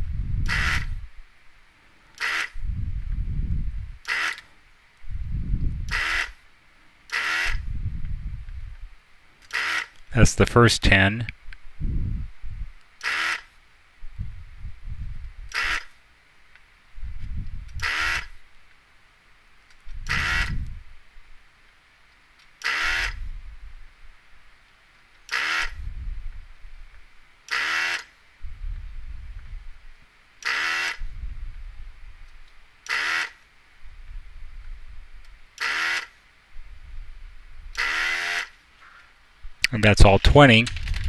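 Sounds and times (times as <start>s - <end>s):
vacuum pump buzz: 0.0s - 1.0s, 5.2s - 6.4s, 7.1s - 8.0s, 9.5s - 10.0s, 17.7s - 18.3s, 20.0s - 20.8s, 22.6s - 23.3s, 25.3s - 25.9s, 30.4s - 31.1s, 32.8s - 33.4s, 35.6s - 36.1s, 37.7s - 38.5s.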